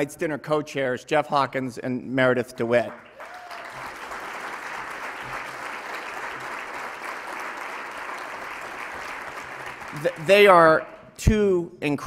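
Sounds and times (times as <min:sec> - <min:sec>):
audience applauding: 0:02.9 - 0:10.7.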